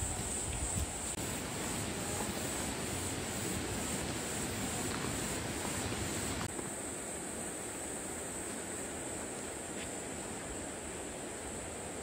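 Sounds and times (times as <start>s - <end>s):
mountain stream rushing: 1.1s - 6.5s.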